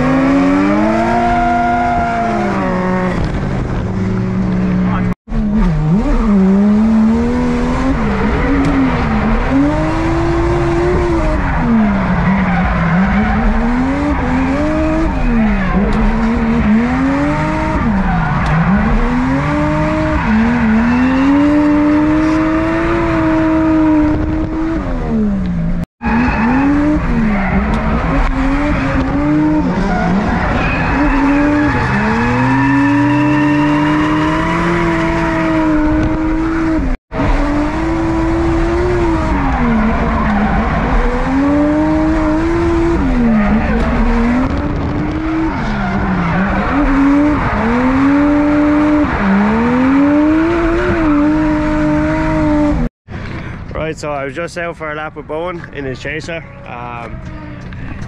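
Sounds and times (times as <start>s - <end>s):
drift car engine revving: 0.0s - 52.9s
tyres squealing: 26.0s - 36.2s.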